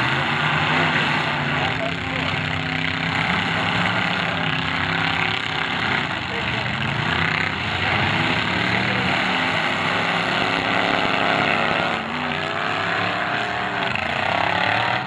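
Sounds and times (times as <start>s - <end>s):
car engines revving hard: 0.0s - 15.0s.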